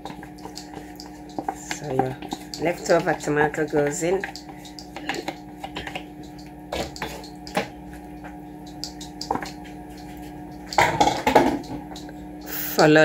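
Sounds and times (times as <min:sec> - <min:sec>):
wet squelches and drips: 0:00.0 - 0:13.0
pan clatter: 0:10.6 - 0:12.0.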